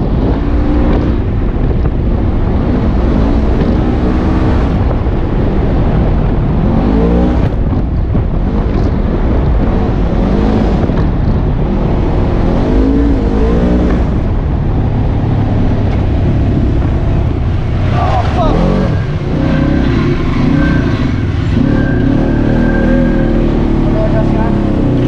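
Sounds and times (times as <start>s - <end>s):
rumble and rattle over bumps: 0.0s - 25.0s
vehicle engine revving under load: 8.4s - 25.0s.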